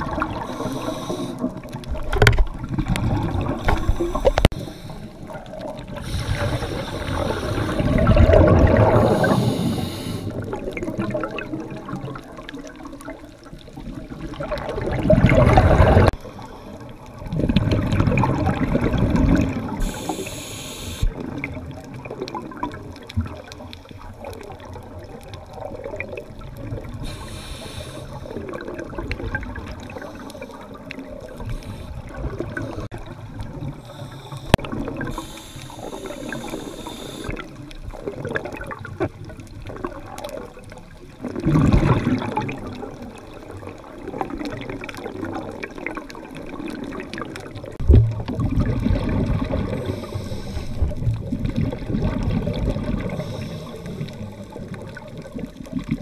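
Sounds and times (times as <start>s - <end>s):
exhaled bubbles rushing underwater: 0.0s - 56.0s
quiet bubbling: 0.0s - 56.0s
regulator short hisses: 19.8s - 21.1s, 33.9s - 37.3s.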